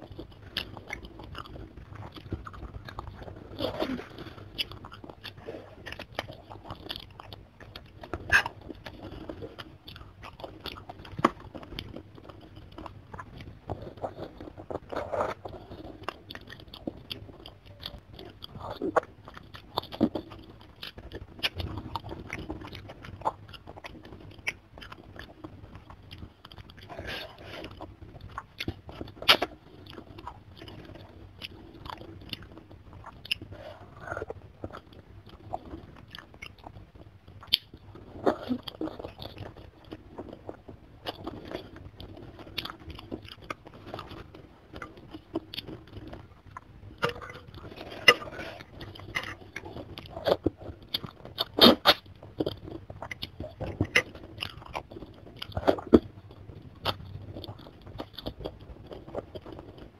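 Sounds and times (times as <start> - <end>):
chewing and biting: 0.0 - 59.9
bone crunching: 37.4 - 59.9.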